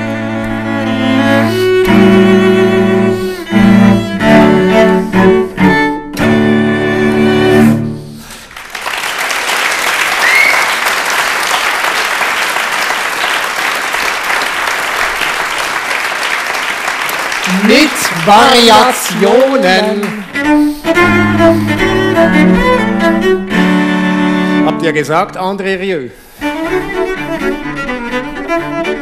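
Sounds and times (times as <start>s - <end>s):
cellos bowing loud notes: 0.0s - 8.4s, 17.5s - 25.3s, 26.1s - 29.0s
audience applause: 8.3s - 20.5s.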